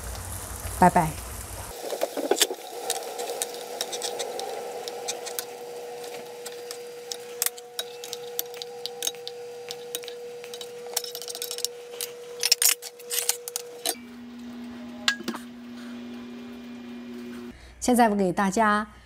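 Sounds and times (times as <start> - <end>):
sauce bubbling: 0.0 - 12.0
faint hum: 0.2 - 17.8
wooden spoon scraping a skillet: 1.7 - 14.0.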